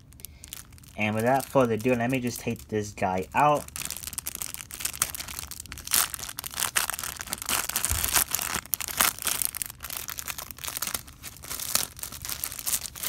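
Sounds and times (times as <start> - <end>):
cardboard and packaging rustling: 0.0 - 13.0.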